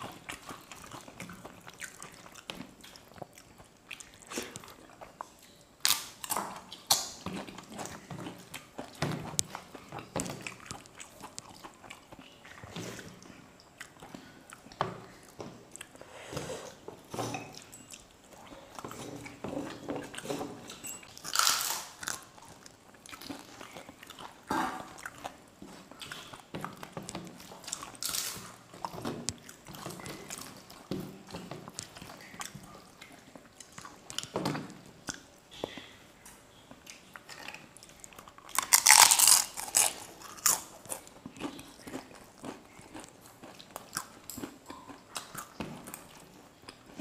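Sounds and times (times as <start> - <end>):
chewing food: 0.0 - 47.0
crisp flatbread crunching: 38.2 - 44.9.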